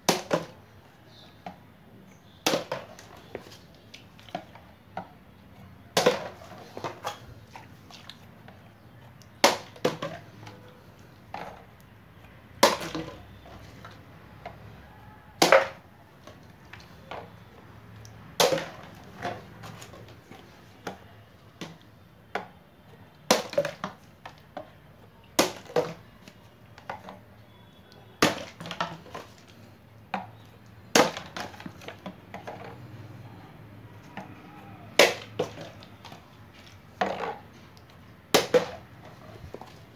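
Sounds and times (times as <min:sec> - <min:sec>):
bottle toppling and bouncing: 0:06.0 - 0:07.2
plastic bottle landing with knock: 0:38.3 - 0:38.8.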